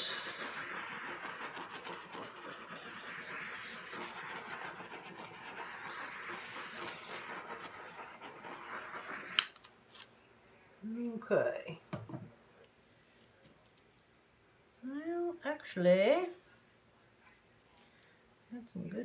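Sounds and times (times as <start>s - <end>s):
butane torch hissing: 0.0s - 9.7s
torch clicks: 0.0s - 10.1s.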